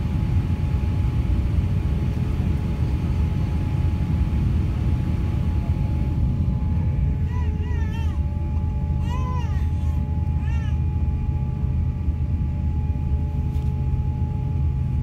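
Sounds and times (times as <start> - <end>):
aircraft cabin rumble: 0.0 - 15.0
faint steady whine: 0.0 - 15.0.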